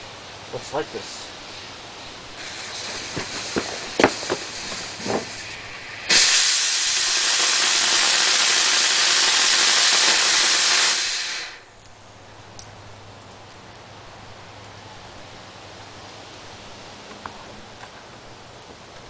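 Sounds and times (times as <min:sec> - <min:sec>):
rocket motor hissing: 0:02.3 - 0:11.7
scattered crackles: 0:02.4 - 0:11.0.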